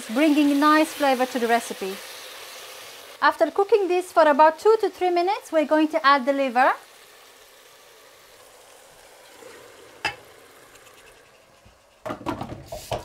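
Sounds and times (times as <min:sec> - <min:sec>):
food sizzling in a pot: 0:00.0 - 0:13.0
knocks on a pot: 0:12.0 - 0:13.0.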